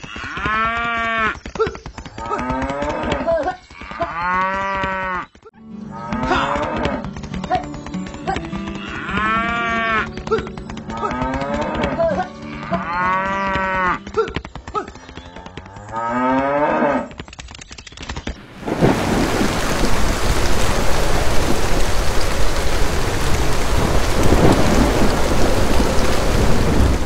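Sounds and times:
cows mooing: 2.2 - 5.3, 5.9 - 7.0, 8.6 - 10.1, 10.9 - 14.1, 15.3 - 17.1.

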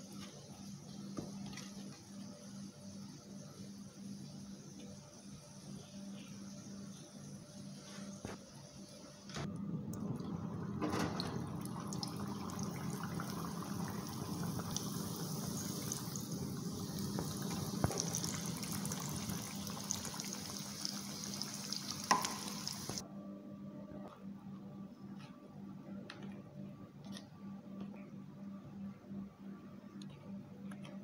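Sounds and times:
dough sizzling in hot oil: 11.7 - 23.0.

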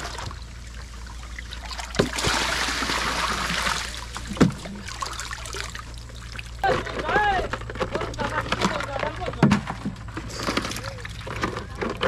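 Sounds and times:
water splashing and pouring: 0.0 - 8.9.

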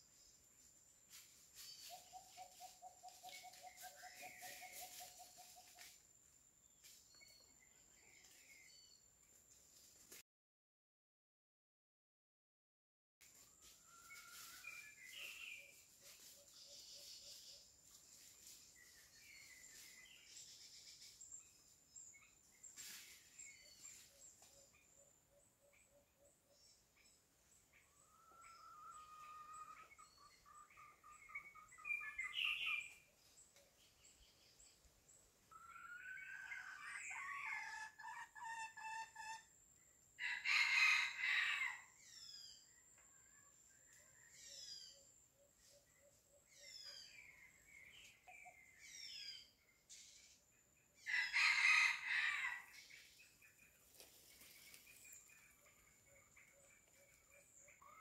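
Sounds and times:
small birds chirping: 1.6 - 6.0, 14.4 - 39.9, 42.0 - 51.2, 52.7 - 58.0
rooster crowing: 40.2 - 41.9, 51.0 - 52.7.

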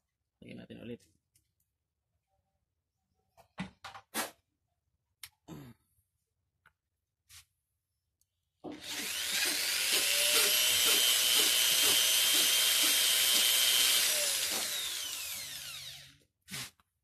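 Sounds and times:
electric drill whining: 8.7 - 16.7.

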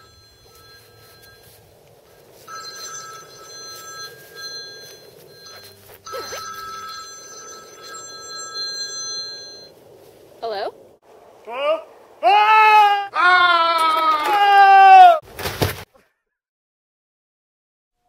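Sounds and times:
cell phone ringtone: 0.0 - 9.8.

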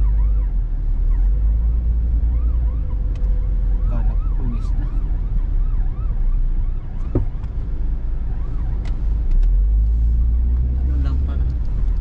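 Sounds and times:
faint warbling siren: 0.0 - 9.2
car cabin road rumble: 0.0 - 12.0.

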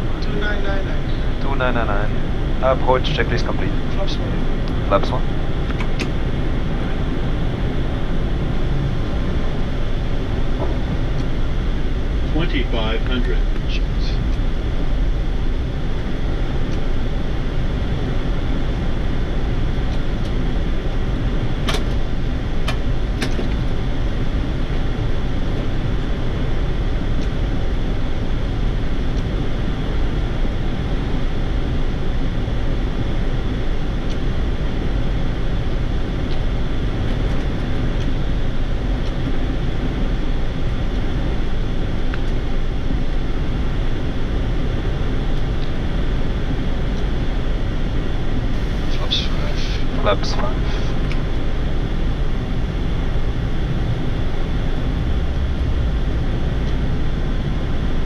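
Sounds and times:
low hum: 0.0 - 58.0
cockpit air rush: 48.5 - 51.2.

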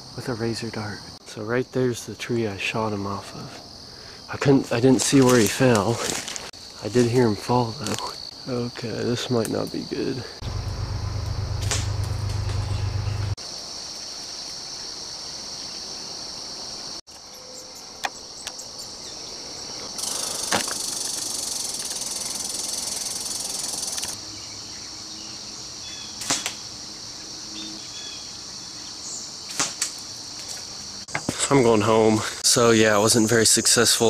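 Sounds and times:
shrill insect chorus: 0.0 - 34.0
low rumble: 10.4 - 13.4.

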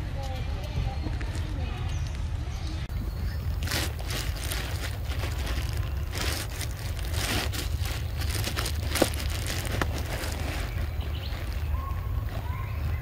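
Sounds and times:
close crackling and crunching: 3.3 - 13.0.

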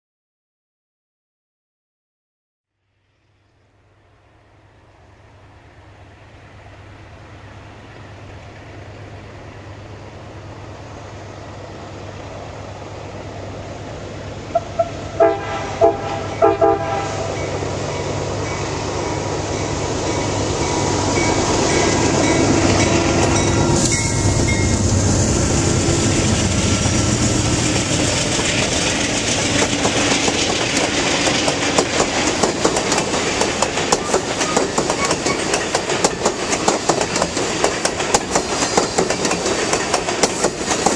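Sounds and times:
diesel locomotive engine hum: 2.9 - 40.9
train horn short blasts: 14.5 - 17.5
train wheels clickety-clack: 26.0 - 40.9.

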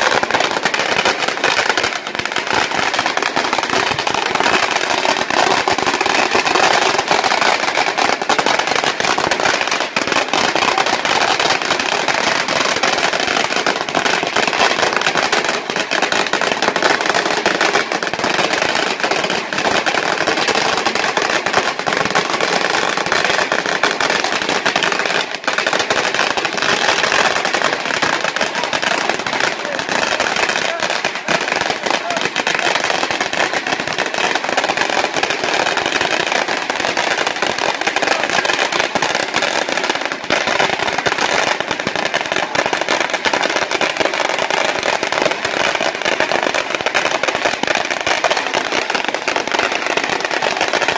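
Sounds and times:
firecrackers crackling: 0.0 - 50.9.

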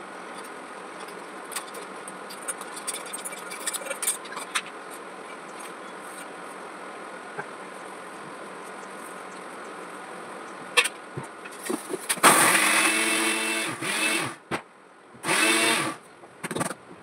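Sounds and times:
mixer grinder grinding: 12.3 - 14.4, 15.2 - 16.0.

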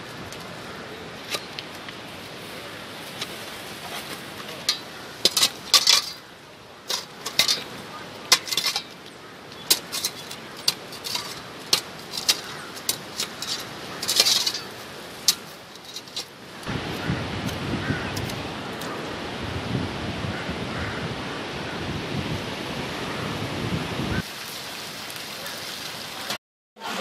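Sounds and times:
metal shovel scraping ice: 3.8 - 6.3, 6.9 - 8.9, 9.6 - 16.4.

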